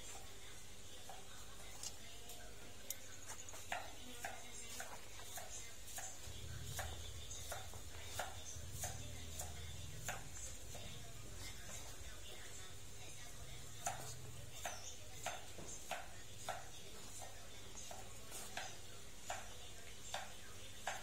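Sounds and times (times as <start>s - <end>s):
light footsteps: 13.6s - 19.6s.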